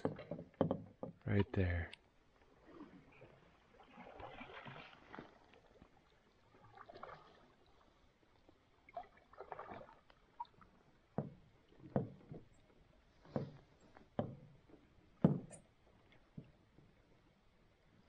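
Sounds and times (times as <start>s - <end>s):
knocks on canoe hull: 0.0s - 1.2s, 15.2s - 15.6s
canoe paddle swishing in water: 2.4s - 17.2s.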